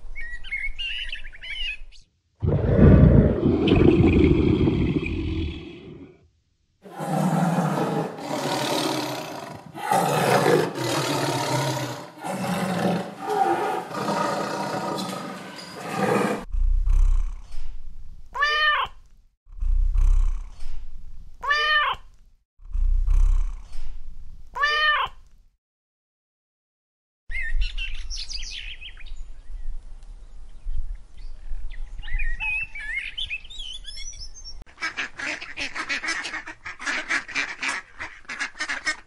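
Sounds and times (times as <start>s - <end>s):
low rumbles: 2.4s - 6.1s
tiger roaring: 2.4s - 6.1s, 6.9s - 16.5s.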